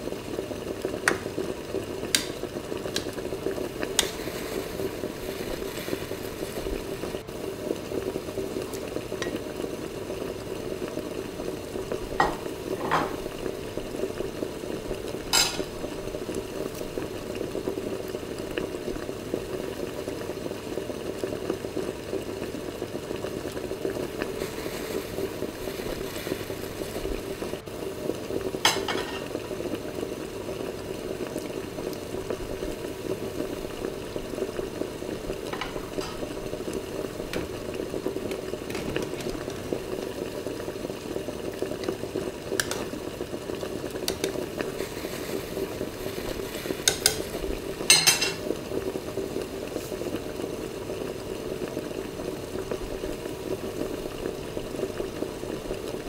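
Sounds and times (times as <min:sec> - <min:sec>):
sauce bubbling and sizzling in a pan: 0:00.0 - 0:56.0
spoon clinking against a pan: 0:47.9 - 0:48.4.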